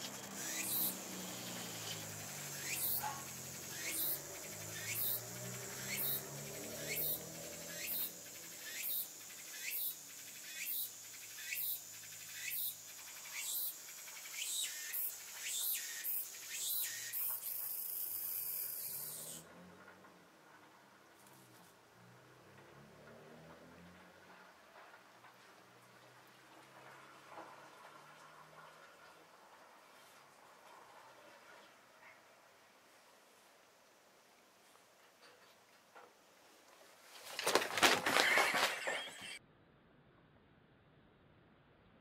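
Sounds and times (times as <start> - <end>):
cicada buzzing: 0.0 - 19.4.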